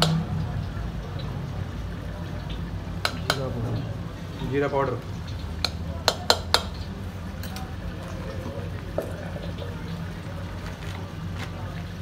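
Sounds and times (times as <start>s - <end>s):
spoon knocking on cooking pot: 5.6s - 6.8s.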